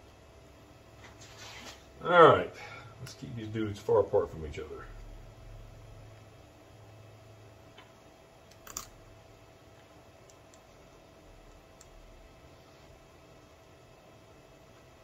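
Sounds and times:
faint steady hum: 0.0 - 15.0
wire connectors clicking: 7.7 - 9.0.

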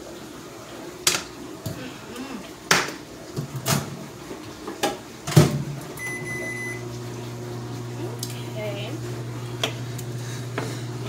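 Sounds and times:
microwave keypad beep: 6.0 - 6.9.

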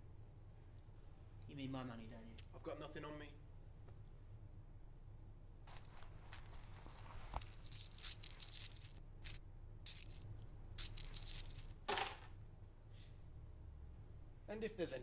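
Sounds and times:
coins jingling: 5.7 - 11.9.

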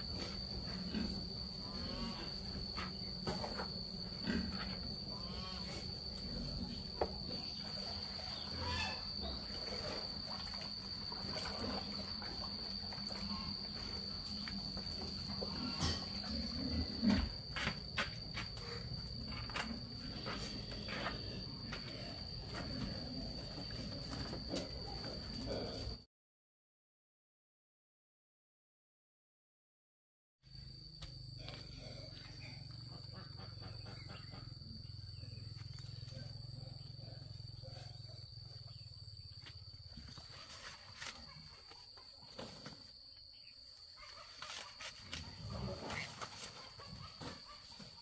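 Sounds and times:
high-pitched insect trill: 0.0 - 26.0, 30.5 - 48.0
knocks and scrapes of buckets: 2.2 - 25.9, 44.1 - 48.0.

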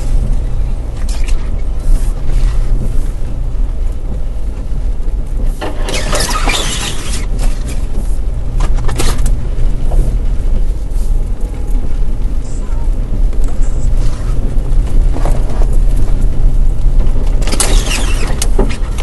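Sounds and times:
vehicle engine low drone: 0.0 - 19.0
loud rushing scrape: 5.6 - 8.1.

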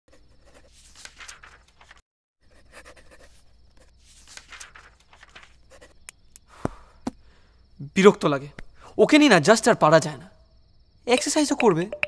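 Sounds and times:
pen scratching on paper: 0.1 - 0.8, 2.4 - 4.0.

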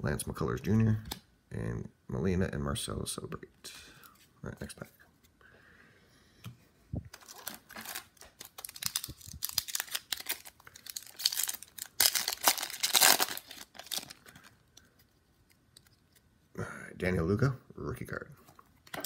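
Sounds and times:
foil wrapper crinkling and tearing: 7.1 - 14.5.

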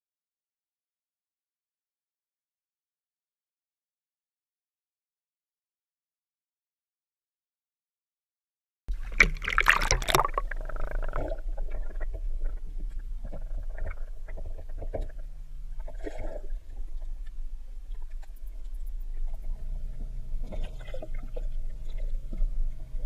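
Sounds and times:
water splashing: 8.9 - 11.2
underwater gurgling and knocks: 8.9 - 23.0
underwater low rumble: 8.9 - 23.0.

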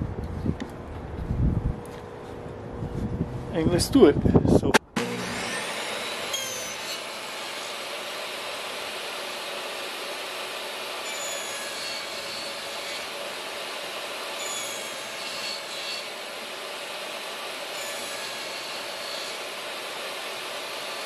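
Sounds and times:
table saw cutting wood: 4.8 - 21.0.

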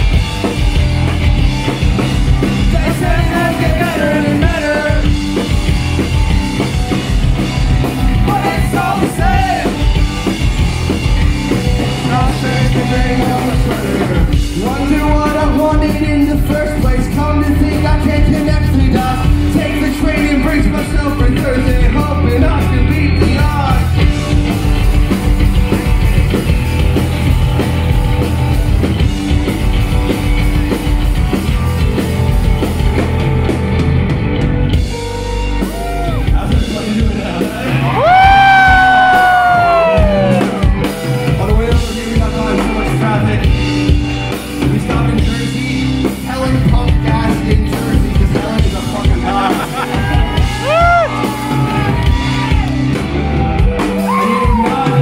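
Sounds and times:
live rock band playing: 0.0 - 55.0
man singing: 2.4 - 5.2, 8.1 - 9.9, 11.8 - 24.9, 35.8 - 40.6, 41.2 - 52.0, 53.9 - 55.0.

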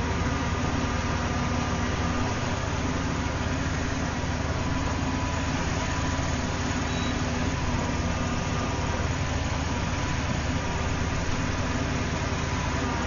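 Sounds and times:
truck engine idling: 0.0 - 13.0.

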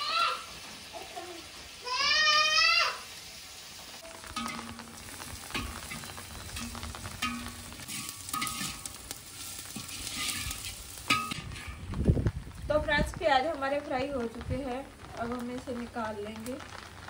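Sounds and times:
onions sizzling in oil: 0.0 - 17.0
scraping against pan: 4.4 - 11.9.

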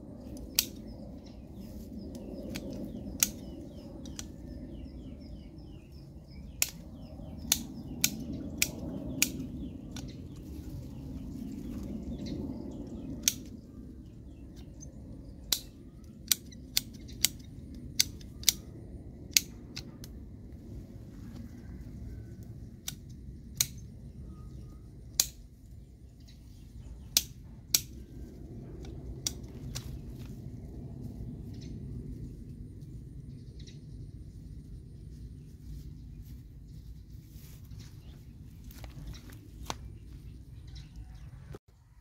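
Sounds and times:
small birds chirping: 0.0 - 20.4, 21.6 - 41.6
pruning shears snipping twigs: 0.4 - 1.0, 2.1 - 4.5, 6.4 - 6.8, 7.4 - 10.4, 25.1 - 25.4, 28.7 - 30.4.

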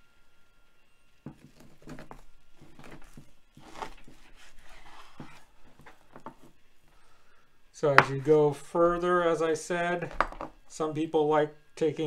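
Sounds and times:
knife sawing through raw meat: 1.4 - 5.6
knife knocking cutting board: 8.0 - 8.3.

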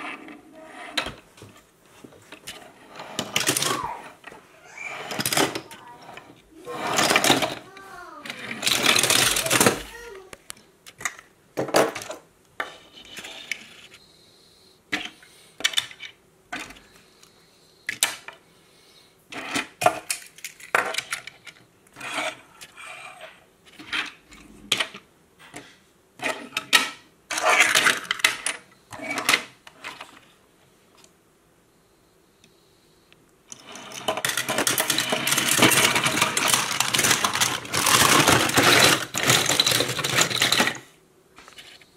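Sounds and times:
toy cars clicking and knocking: 2.9 - 13.9, 14.9 - 16.8, 19.3 - 25.0, 25.6 - 30.1, 33.5 - 40.9
toy cars rattling in plastic bin: 3.0 - 4.0, 4.6 - 10.2, 27.3 - 29.5, 33.5 - 40.9.

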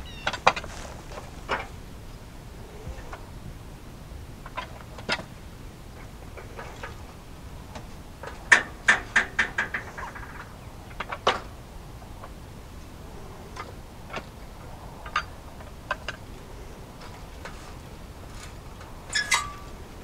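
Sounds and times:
metallic clacks and knocks: 7.7 - 11.5.

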